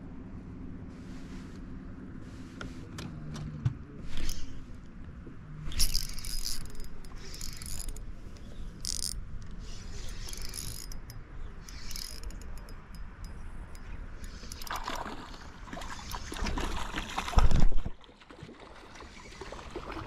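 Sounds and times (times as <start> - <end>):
fishing reel whirring and clicking: 4.1 - 4.6, 5.6 - 14.9.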